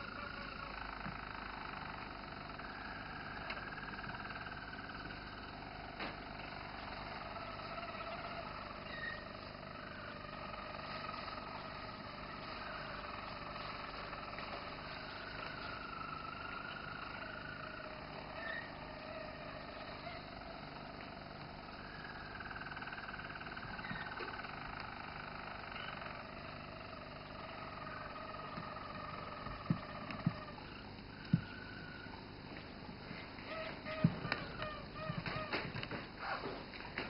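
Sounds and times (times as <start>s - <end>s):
canary singing trills: 0.0s - 37.0s.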